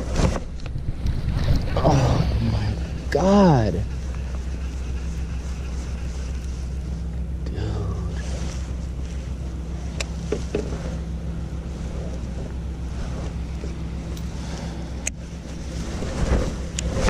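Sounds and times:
wind rumble on microphone: 0.0s - 17.0s
rain jacket rustling: 3.9s - 7.2s, 8.2s - 17.0s.

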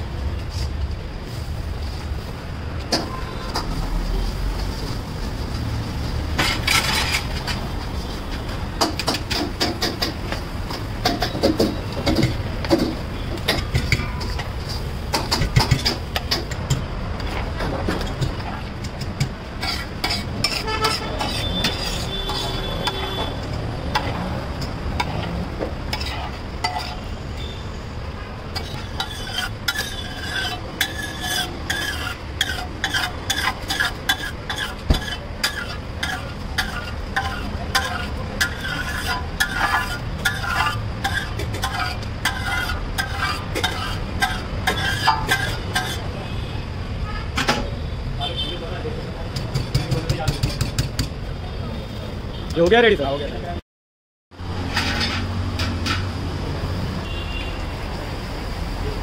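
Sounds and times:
ladle scraping on hot griddle: 6.4s - 7.8s, 13.5s - 27.5s, 28.5s - 46.2s.

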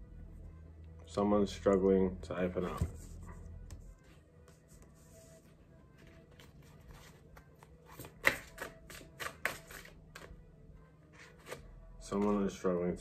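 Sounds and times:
cards being shuffled: 6.0s - 10.4s, 11.1s - 12.4s.

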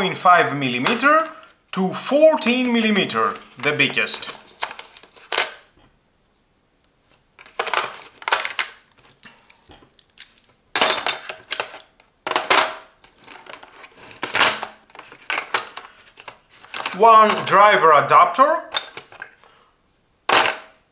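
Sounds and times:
metal tools clattering in plastic case: 7.4s - 8.8s, 10.2s - 17.6s, 18.7s - 19.4s.

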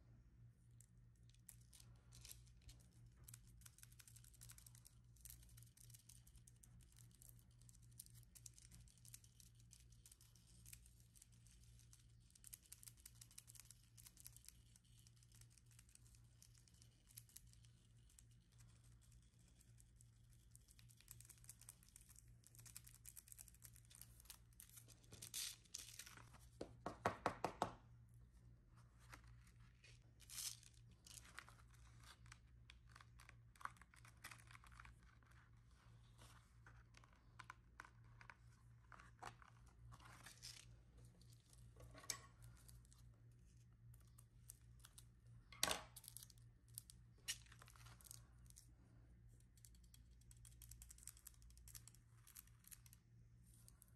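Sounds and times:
paper backing peeling and crinkling: 1.2s - 26.8s, 28.8s - 45.1s.

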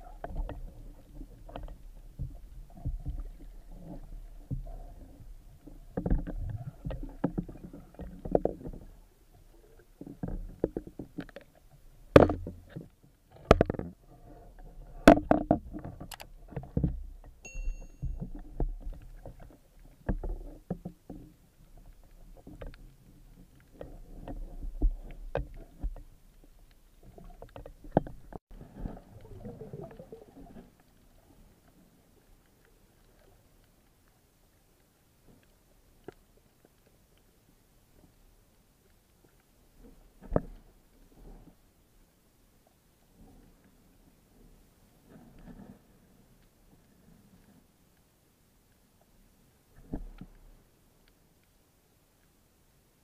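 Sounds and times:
underwater water noise: 0.0s - 53.0s
sharp clicks underwater: 10.0s - 14.0s, 15.0s - 28.4s
dull knocks underwater: 12.1s - 14.0s, 15.0s - 17.4s
short electronic chime: 17.4s - 18.2s.

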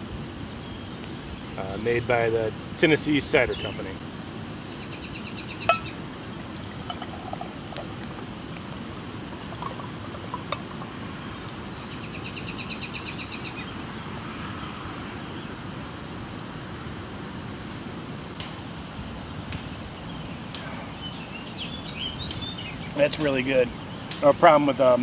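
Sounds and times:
sharp clink: 5.7s - 6.0s
liquid pouring into metal cup: 6.5s - 11.0s.

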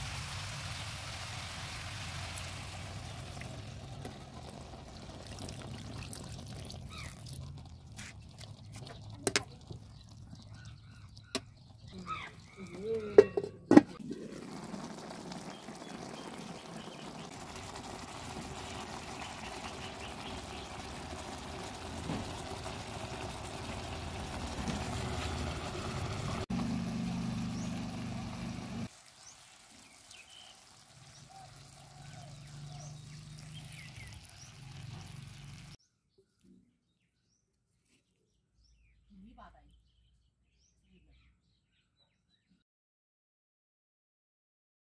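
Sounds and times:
curry sizzling in oil: 0.0s - 13.3s, 14.0s - 35.8s
ladle knocking on pot: 13.0s - 14.0s.

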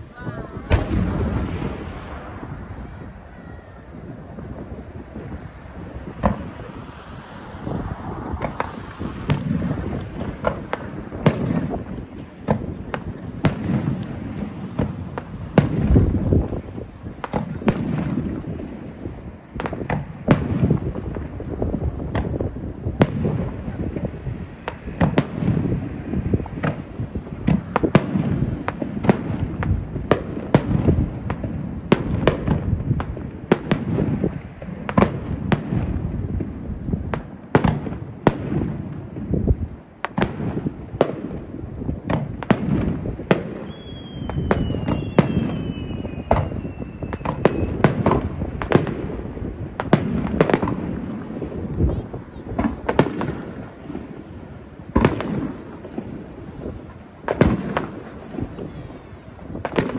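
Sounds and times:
fireworks booms and crackles: 0.0s - 59.9s
faint high whistle: 43.6s - 47.9s.

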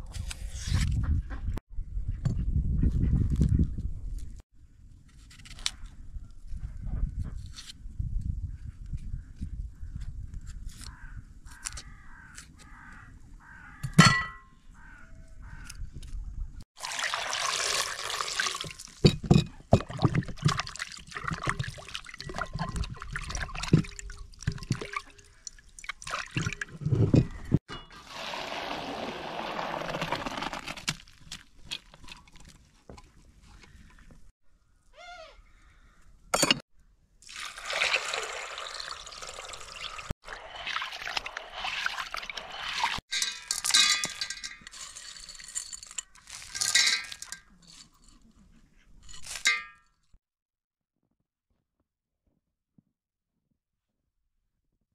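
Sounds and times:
water pouring onto grains: 16.8s - 19.0s, 28.0s - 30.8s, 37.3s - 43.0s.

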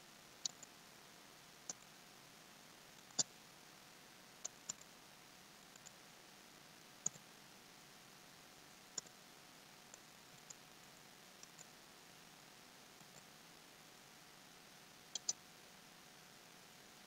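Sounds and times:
mouse and keyboard clicks: 4.4s - 4.9s, 11.4s - 11.7s, 15.1s - 15.4s.

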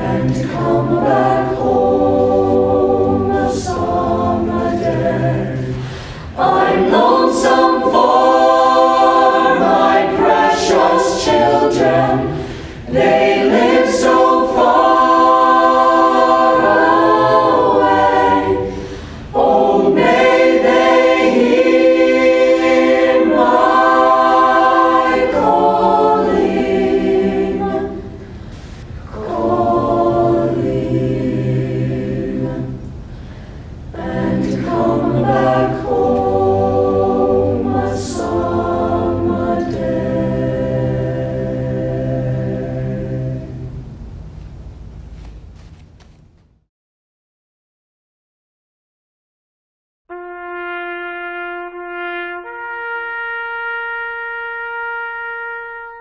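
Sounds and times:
choir singing a cappella: 0.0s - 44.0s.

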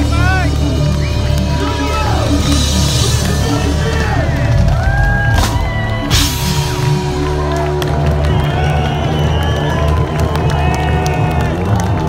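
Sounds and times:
metal band playing live: 0.0s - 10.0s
sharp noisy hits: 4.7s - 8.8s.

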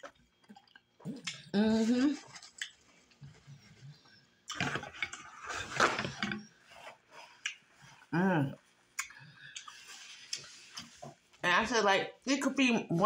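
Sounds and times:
crackle and rustle: 0.0s - 11.4s
person humming: 1.5s - 2.3s, 8.1s - 8.6s.

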